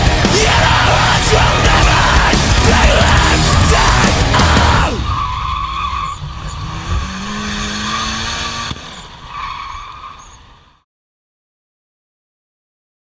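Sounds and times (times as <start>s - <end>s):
loud rock music: 0.0s - 6.4s
car engine running: 0.0s - 10.7s
tyres squealing: 0.4s - 10.6s.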